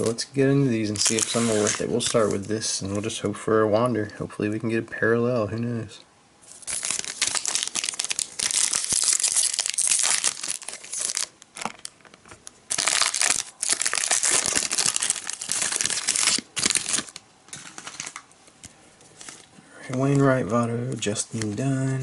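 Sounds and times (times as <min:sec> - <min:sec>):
plastic wrapper crinkling and tearing: 0:00.8 - 0:02.6, 0:06.5 - 0:18.3, 0:19.1 - 0:22.0.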